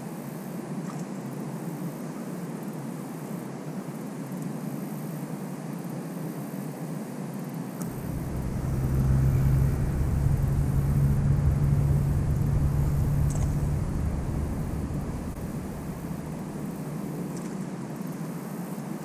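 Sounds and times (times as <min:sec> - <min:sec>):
vehicle engine passing by: 0:07.8 - 0:17.5.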